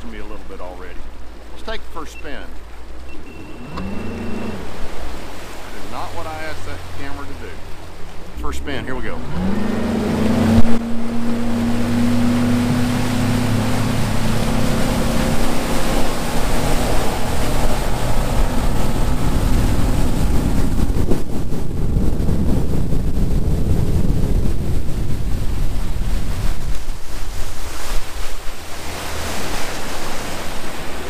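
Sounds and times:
rushing water: 0.0s - 31.0s
outboard motor revving: 0.8s - 31.0s
wind on microphone: 9.1s - 31.0s.

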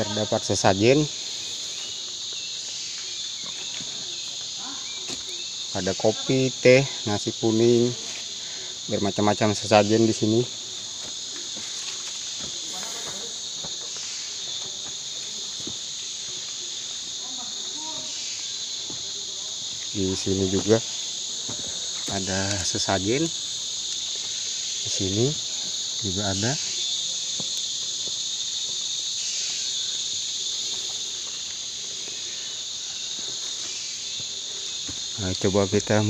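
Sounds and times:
high-pitched insect chorus: 0.0s - 36.0s
footsteps on rock: 3.3s - 4.1s, 5.0s - 5.4s, 10.6s - 16.4s, 21.4s - 22.6s, 27.3s - 28.9s, 33.1s - 35.2s.

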